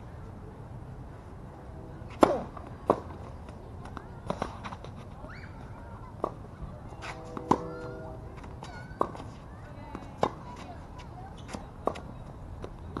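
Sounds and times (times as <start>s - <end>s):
racket hitting tennis ball: 2.1s - 3.2s, 7.0s - 10.6s
tennis ball bouncing: 7.2s - 10.7s.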